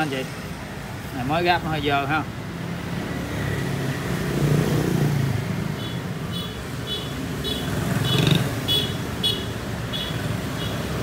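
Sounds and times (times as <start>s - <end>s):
two-stroke engine revving: 7.4s - 8.8s.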